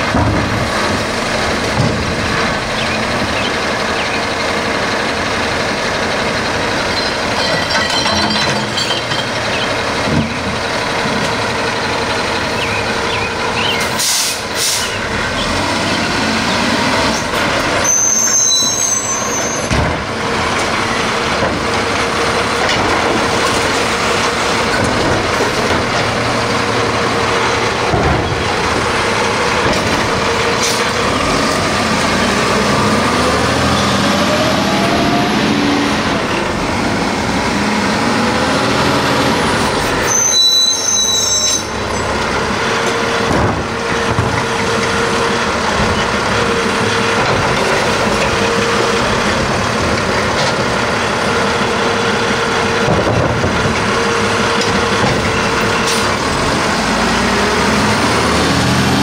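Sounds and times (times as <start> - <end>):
truck engine running: 0.0 - 18.3, 19.3 - 40.1, 41.7 - 59.0
air brake hiss: 14.0 - 14.9.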